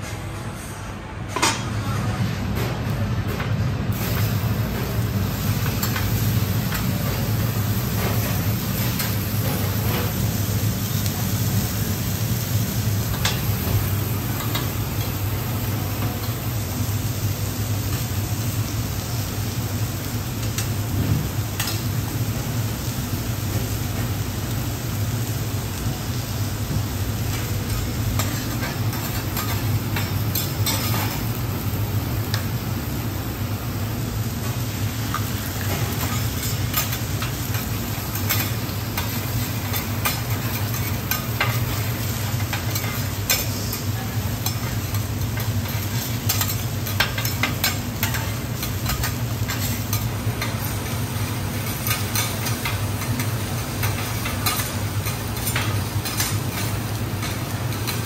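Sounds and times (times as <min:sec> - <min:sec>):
food sizzling on a griddle: 0:03.6 - 0:58.0
metal spatulas scraping and clacking: 0:35.1 - 0:51.0, 0:51.6 - 0:58.0.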